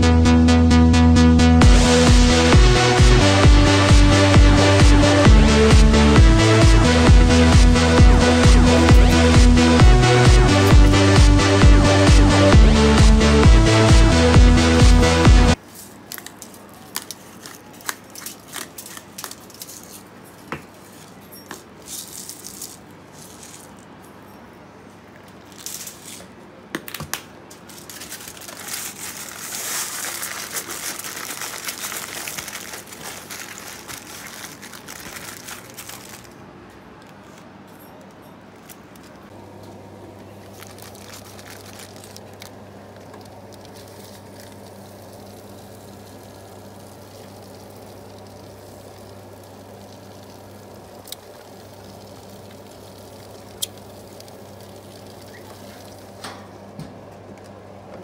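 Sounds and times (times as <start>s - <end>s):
low hum: 0.0s - 15.6s
aluminium foil crinkling: 15.6s - 24.0s, 25.1s - 36.4s, 40.1s - 56.2s.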